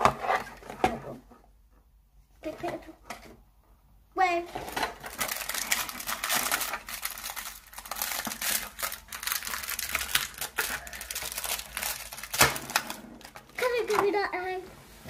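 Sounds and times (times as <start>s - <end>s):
plastic packaging crinkling: 4.6s - 14.0s
plastic snapping: 11.8s - 14.0s.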